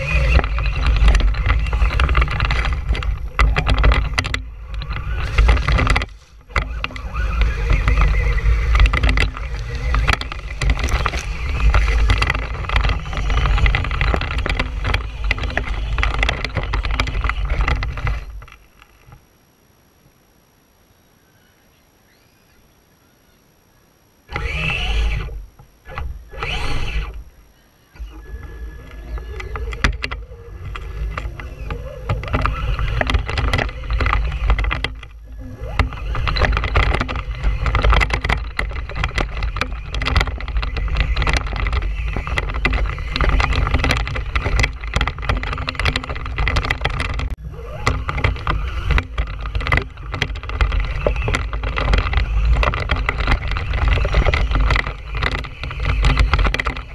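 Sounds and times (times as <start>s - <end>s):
toy truck motor rattling: 0.0s - 19.0s, 24.3s - 27.3s, 27.9s - 56.9s.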